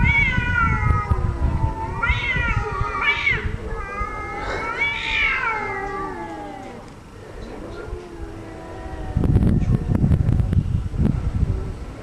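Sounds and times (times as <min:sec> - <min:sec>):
cats yowling: 0:00.0 - 0:07.0, 0:07.6 - 0:10.0.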